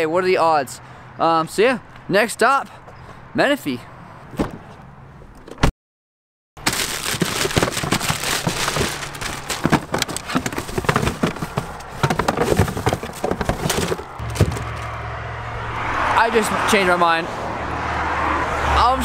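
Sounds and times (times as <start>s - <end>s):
tissue paper rustling: 6.6s - 14.0s.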